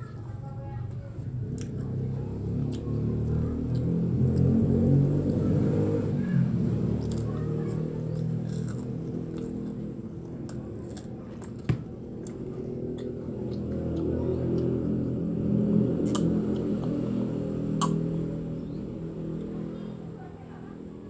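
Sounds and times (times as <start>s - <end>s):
child crunching crackers: 1.4s - 5.4s, 6.8s - 15.0s, 15.8s - 17.0s.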